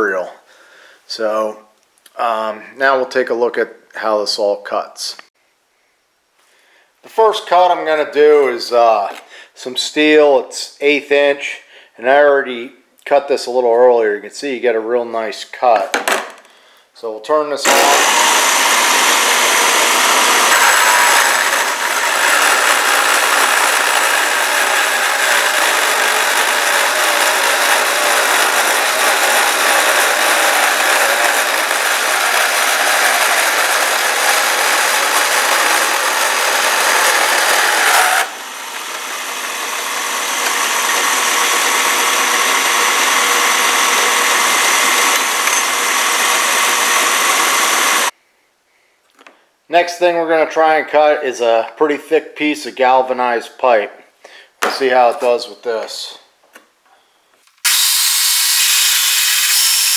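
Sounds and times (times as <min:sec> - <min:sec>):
bandsaw cutting steel: 0:17.6 - 0:48.1, 0:57.6 - 0:59.9.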